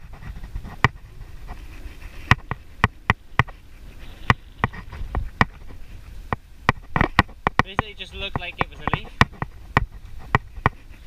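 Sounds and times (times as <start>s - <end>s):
tyres and wind rumble: 0.0s - 11.0s
bicycle knocks and clanks: 4.2s - 10.8s.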